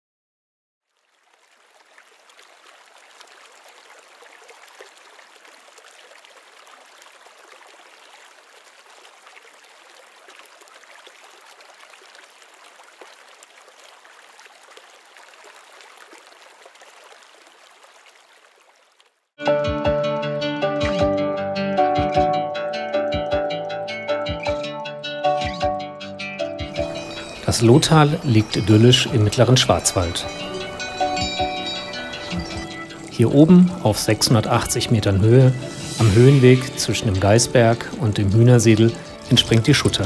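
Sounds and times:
brook babbling: 0.8 - 19.4, 26.7 - 40.0.

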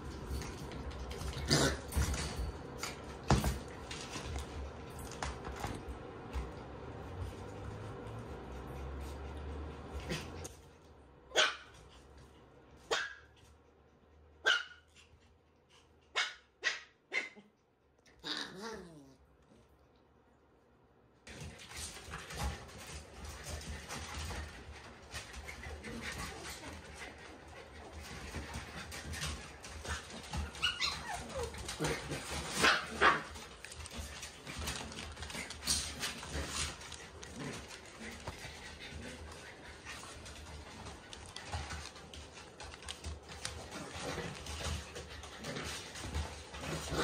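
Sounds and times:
dog yapping: 11.3 - 11.7, 12.9 - 13.2, 30.5 - 31.5
puppy barking: 11.3 - 11.7, 12.9 - 13.3, 14.4 - 14.9, 16.1 - 17.5, 32.6 - 33.3
dog whining: 30.4 - 31.8.

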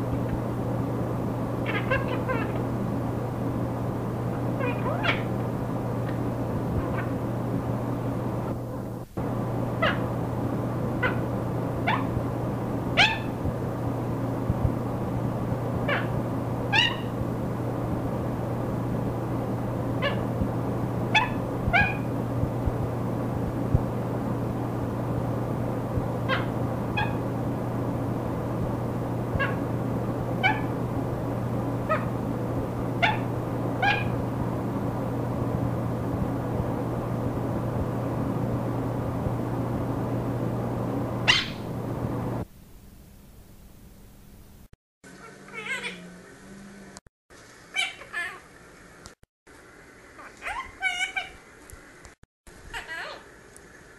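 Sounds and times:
recording hum and static: 0.0 - 53.9
parakeet chirping: 1.6 - 2.8, 4.3 - 5.4, 6.0 - 7.2, 9.4 - 10.2, 10.9 - 12.2, 12.9 - 13.4, 15.8 - 17.2, 19.9 - 20.3, 21.1 - 22.2, 26.2 - 27.3, 29.3 - 29.7, 30.3 - 30.8, 31.8 - 32.2, 32.9 - 34.2, 41.2 - 41.8, 50.2 - 51.3.

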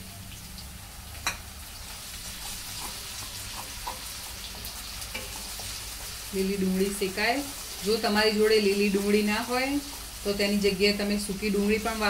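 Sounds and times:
vegetables sizzling in hot oil: 0.0 - 12.0
spatula stirring in pan: 1.8 - 10.5.

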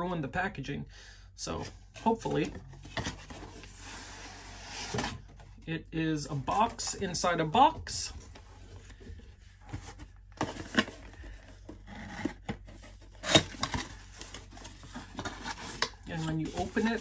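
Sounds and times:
cardboard rubbing and scraping: 2.0 - 5.4, 7.7 - 17.0.

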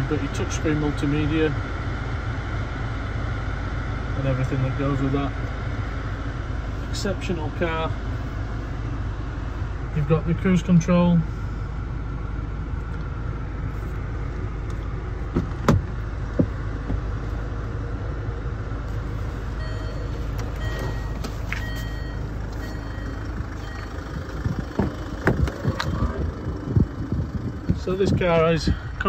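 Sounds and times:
diesel engine idling: 0.0 - 29.0
short electronic beeps: 19.6 - 24.2.

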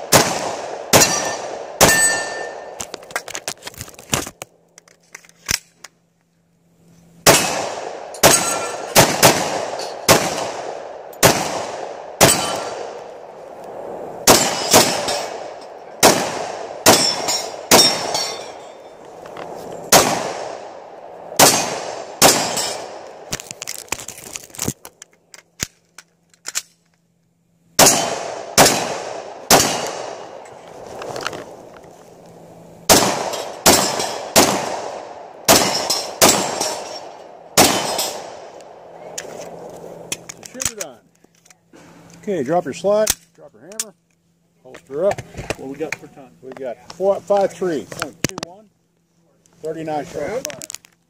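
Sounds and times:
pistol rapid shots: 0.0 - 2.5, 7.2 - 12.9, 14.3 - 18.1, 21.4 - 23.0, 27.8 - 30.3, 32.9 - 36.8, 37.6 - 38.4.

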